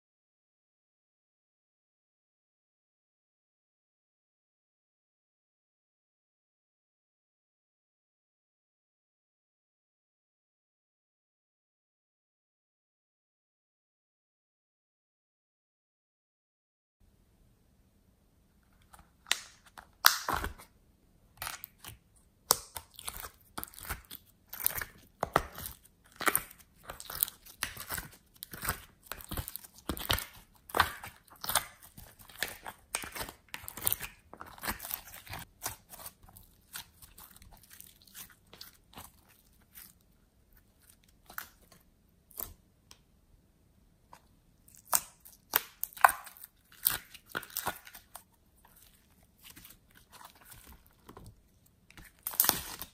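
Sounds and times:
slime crackling and squelching: 0:18.8 - 0:20.7, 0:21.4 - 0:42.6, 0:44.6 - 0:52.9.

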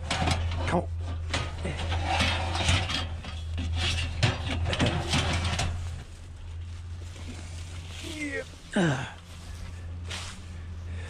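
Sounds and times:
metal rail clanking and scraping: 0:00.0 - 0:06.1
low steady hum: 0:00.0 - 0:11.0.

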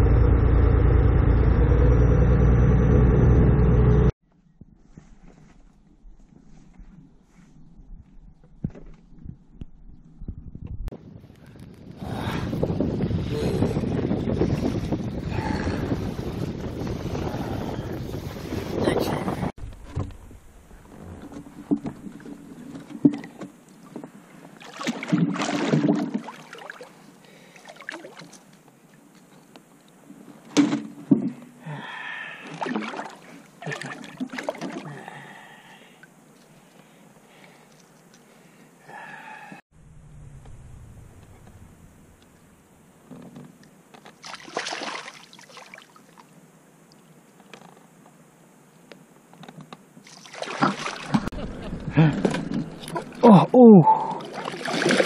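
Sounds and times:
faint water clicks: 0:36.4 - 0:38.3
fish splashing at water surface: 0:44.2 - 0:46.2, 0:50.0 - 0:51.4, 0:54.2 - 0:55.0.

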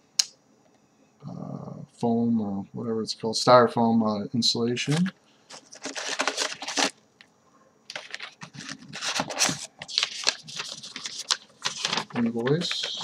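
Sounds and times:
paper sheets handled: 0:04.8 - 0:06.9, 0:07.9 - 0:13.0
crumpled paper rustling: 0:04.8 - 0:07.0, 0:07.9 - 0:13.0.

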